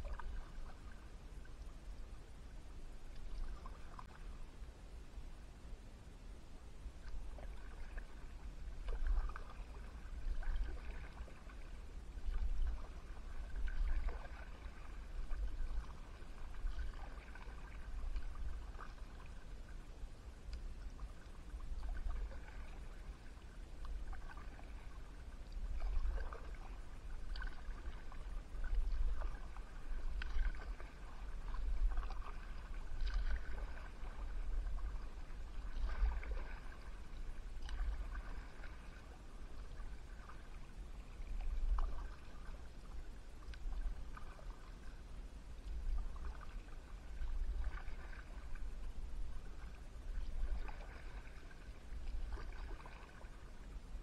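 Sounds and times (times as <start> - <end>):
steady low rumble: 0.0 - 54.0
paddle splashing in water: 3.1 - 4.4, 7.0 - 19.9, 20.9 - 45.0, 45.6 - 53.7.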